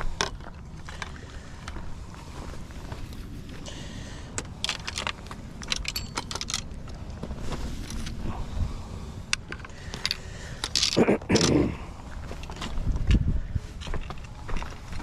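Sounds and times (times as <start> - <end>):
footsteps on gravelly ground: 0.0 - 8.2, 9.8 - 15.0
wind rumble on microphone: 6.6 - 9.6, 11.7 - 15.0.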